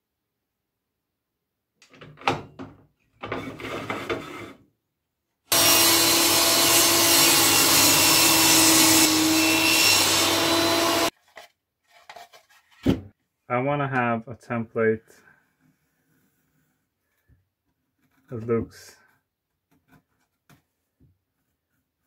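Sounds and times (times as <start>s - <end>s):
table saw cutting wood: 5.5s - 11.1s
wooden board knocks and rustles: 12.7s - 13.2s.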